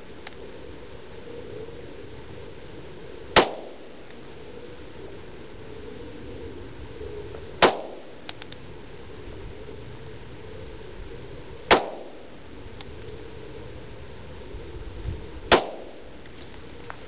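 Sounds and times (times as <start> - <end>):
pistol shots: 3.4 - 3.8, 7.6 - 8.1, 11.7 - 12.2, 15.5 - 16.0.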